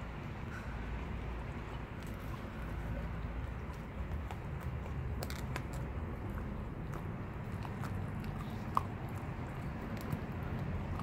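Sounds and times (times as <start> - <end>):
puppies chewing on fish: 0.0 - 11.0
teeth crunching on bone: 3.7 - 11.0.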